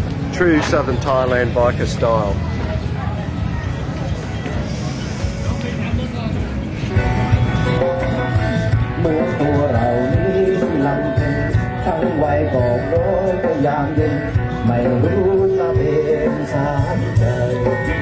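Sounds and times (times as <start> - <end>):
guitar: 0.0 - 18.0
person singing: 7.6 - 18.0.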